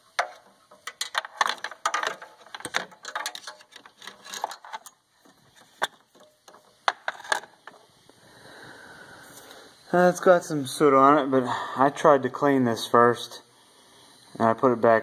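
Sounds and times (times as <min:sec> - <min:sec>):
sensor and wire clicking and rattling: 0:00.0 - 0:07.9.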